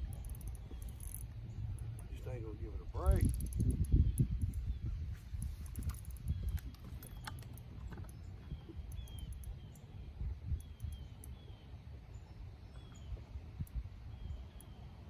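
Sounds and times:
fishing reel clicking: 0:00.0 - 0:02.3, 0:03.0 - 0:04.7, 0:05.5 - 0:08.2
wind rumble on microphone: 0:00.0 - 0:15.0
faint bird chirps: 0:03.8 - 0:15.0.

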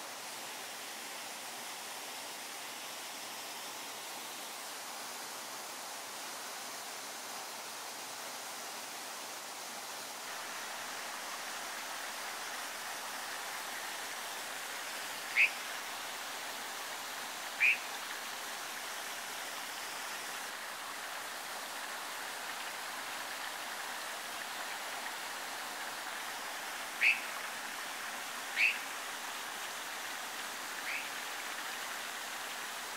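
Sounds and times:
stream flowing: 0:00.0 - 0:32.9
bird chirps: 0:15.4 - 0:15.6, 0:17.6 - 0:17.8, 0:27.0 - 0:27.3, 0:28.6 - 0:28.8, 0:30.8 - 0:31.1.

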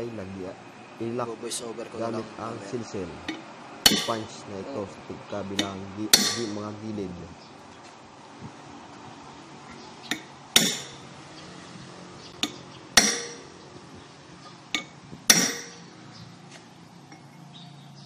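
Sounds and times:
hammer striking steel punch: 0:03.3 - 0:04.3, 0:05.6 - 0:06.7, 0:10.1 - 0:11.1, 0:12.4 - 0:13.5, 0:14.7 - 0:15.9.

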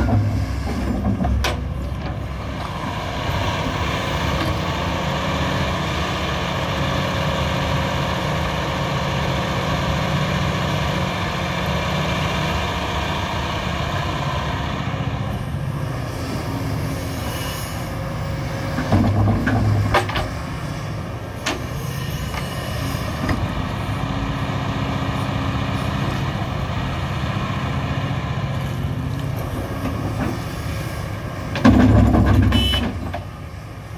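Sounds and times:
excavator diesel engine running: 0:00.0 - 0:33.9
hydraulic work noise: 0:15.3 - 0:23.9
soil and rock crashing into truck: 0:31.6 - 0:33.1.

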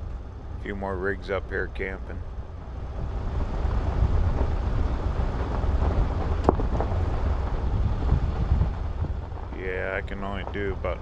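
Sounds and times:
van tyres rumbling over gravel: 0:00.0 - 0:11.0.

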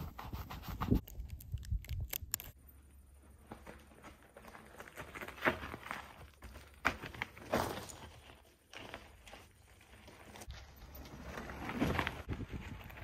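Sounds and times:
tyre crunching over gravel: 0:03.1 - 0:13.0.

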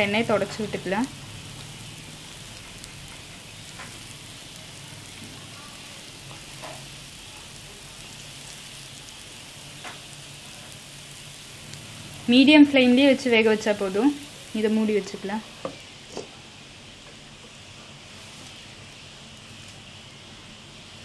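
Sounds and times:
food sizzling in oil: 0:00.0 - 0:21.0.

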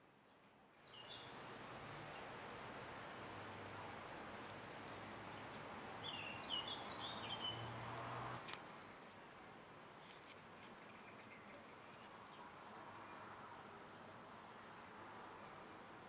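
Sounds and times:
steady background hiss: 0:00.0 - 0:16.0
bird chirping: 0:00.9 - 0:02.2, 0:05.4 - 0:07.8, 0:10.8 - 0:14.2.

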